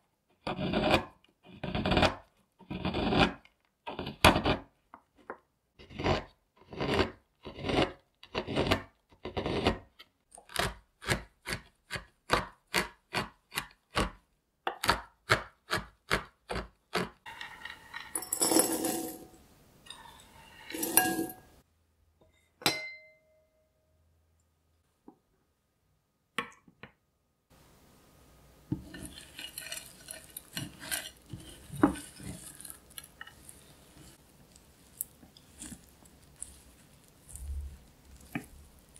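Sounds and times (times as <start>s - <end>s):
knife scraping chocolate: 0.3s - 4.7s, 5.8s - 14.2s, 28.8s - 38.9s.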